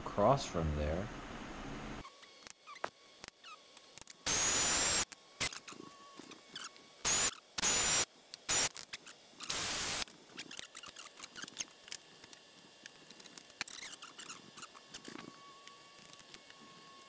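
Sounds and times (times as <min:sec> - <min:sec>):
drill whining through metal: 0:02.1 - 0:11.6.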